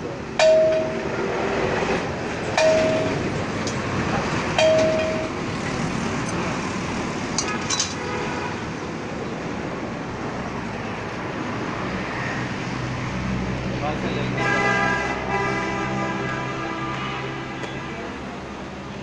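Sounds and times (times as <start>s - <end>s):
steady background noise: 0.0s - 19.0s
hand tools clinking on metal: 7.4s - 8.0s.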